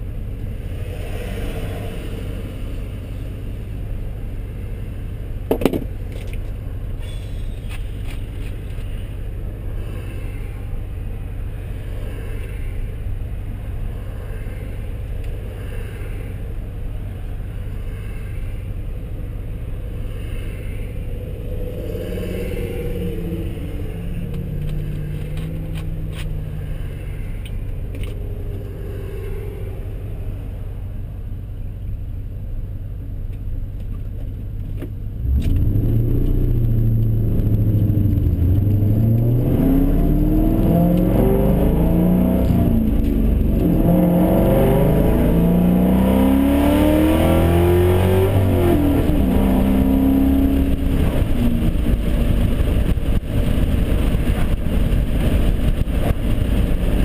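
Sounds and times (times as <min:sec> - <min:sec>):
car engine idling: 0:00.0 - 0:01.2, 0:01.9 - 0:39.4.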